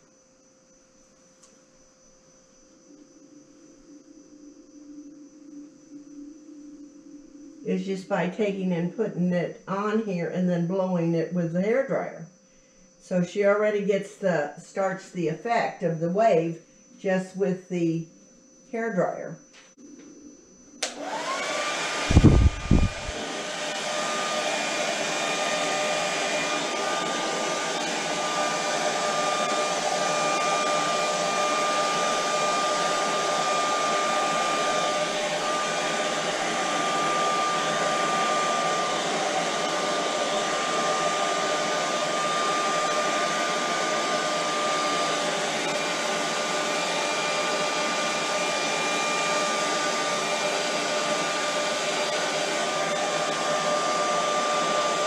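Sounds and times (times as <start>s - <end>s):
hair dryer running: 20.8s - 55.0s.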